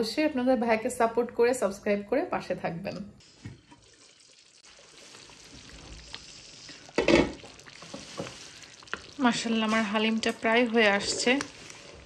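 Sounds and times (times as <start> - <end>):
food sizzling in a pot: 3.2 - 12.0
spoon stirring in a pot: 3.4 - 12.0.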